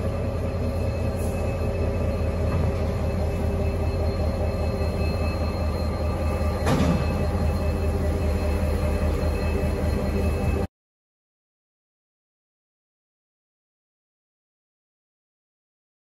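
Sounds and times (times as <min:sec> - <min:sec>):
diesel locomotive engine running: 0:00.0 - 0:10.7
metal clank: 0:06.6 - 0:07.3.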